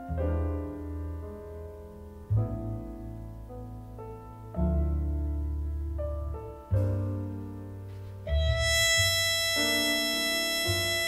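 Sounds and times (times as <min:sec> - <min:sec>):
sustained chords over deep bass: 0:08.3 - 0:11.0.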